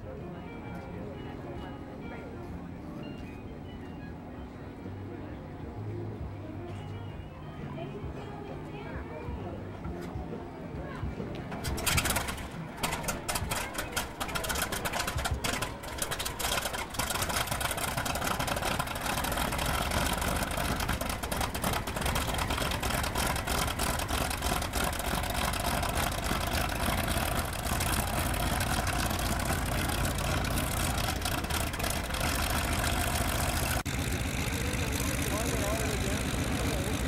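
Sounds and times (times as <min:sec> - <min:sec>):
radial aircraft engine idling: 0:11.5 - 0:37.0.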